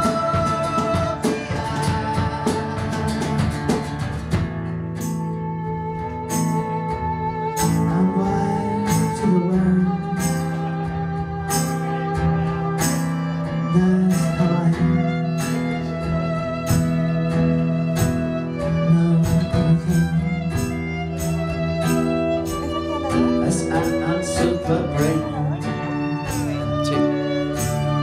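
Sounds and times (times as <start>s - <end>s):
sharp percussive hits: 0.0s - 8.2s, 15.3s - 28.0s
acoustic guitar: 0.0s - 28.0s
violin: 0.0s - 28.0s.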